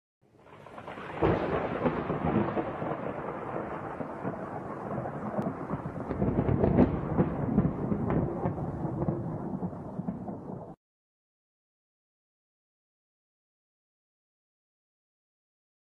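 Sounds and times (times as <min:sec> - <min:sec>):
thunder rumbling: 0:00.5 - 0:10.8.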